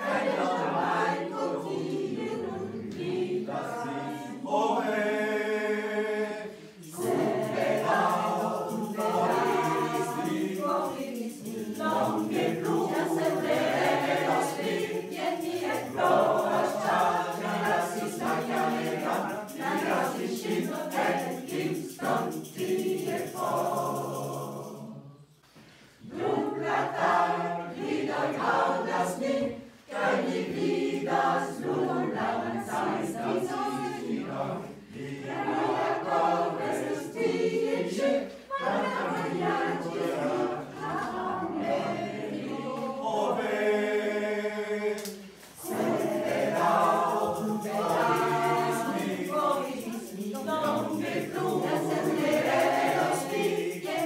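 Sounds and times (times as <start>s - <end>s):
mixed choir singing: 0.0s - 54.0s.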